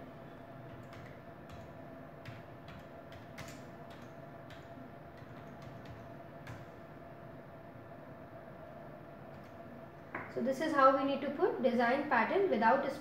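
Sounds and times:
low steady hum: 0.0 - 13.0
computer keyboard keys clicking: 0.7 - 6.7.

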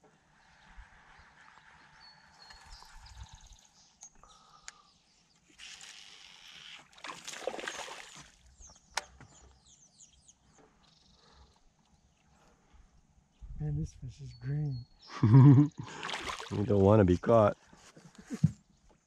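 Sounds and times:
fish splashing in water: 6.8 - 8.4, 15.8 - 16.7.

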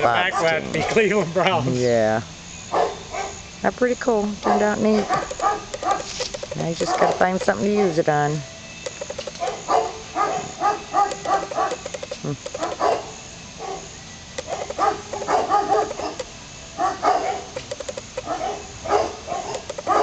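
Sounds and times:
dog barking: 0.2 - 1.1, 2.7 - 3.4, 4.4 - 6.1, 6.8 - 8.0, 9.4 - 11.9, 12.6 - 16.2, 16.8 - 17.6, 18.2 - 20.0.

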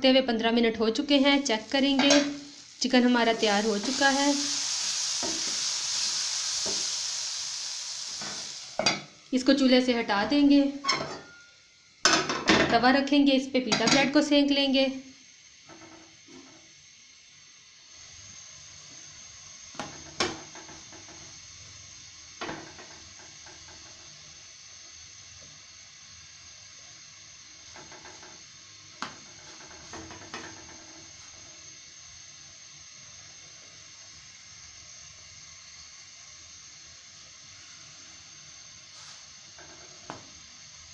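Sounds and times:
faint hiss of hot griddle: 0.0 - 40.9
bread tapping on griddle: 19.7 - 21.2, 27.7 - 28.4, 29.0 - 30.9, 39.6 - 40.3.

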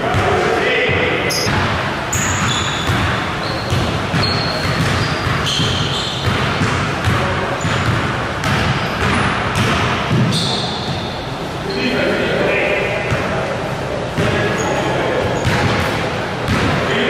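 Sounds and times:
sneaker squeaks: 0.8 - 12.1, 14.2 - 16.7
basketball bouncing on hardwood: 3.7 - 10.3.

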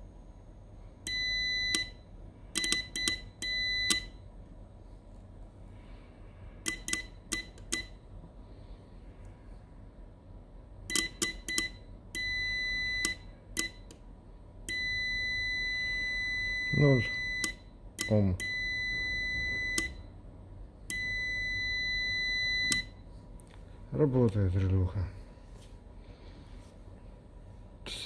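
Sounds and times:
multimeter buzzer beeping: 1.0 - 4.2, 6.6 - 8.0, 10.9 - 13.9, 14.7 - 20.1, 20.9 - 23.0.

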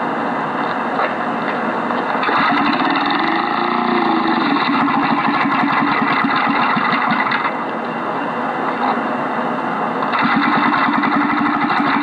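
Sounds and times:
small engine pull-started and running: 2.2 - 7.6, 10.0 - 12.0.

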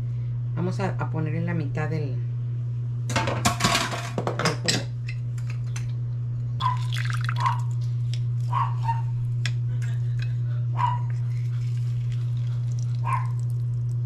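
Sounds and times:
juice spattering into liquid: 6.7 - 7.7.

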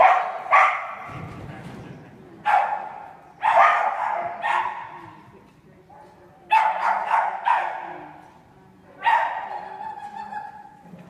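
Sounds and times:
dog barking excitedly: 0.0 - 1.1, 2.4 - 5.0, 6.5 - 7.9, 9.0 - 9.6.

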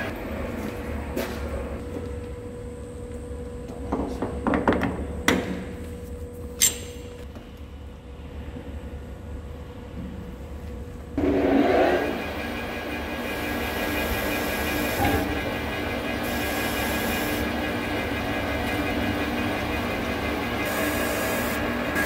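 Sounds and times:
metal lathe humming: 11.2 - 22.0.

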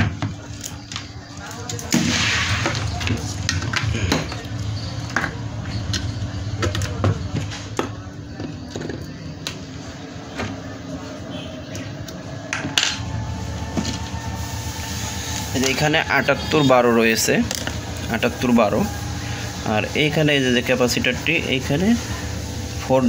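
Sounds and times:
steady low hum: 0.5 - 23.0.

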